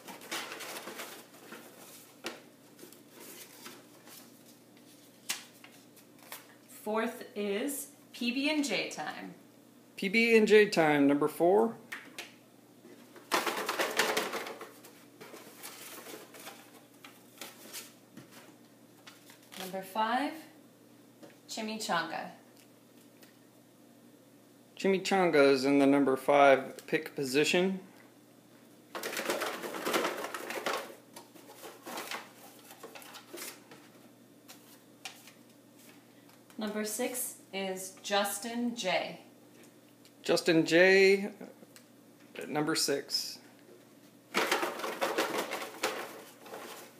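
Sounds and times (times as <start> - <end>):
paper cards rustling in cardboard box: 0.0 - 6.5, 13.3 - 16.8, 29.0 - 33.8, 44.4 - 46.9
cardboard box rustling: 14.8 - 16.8.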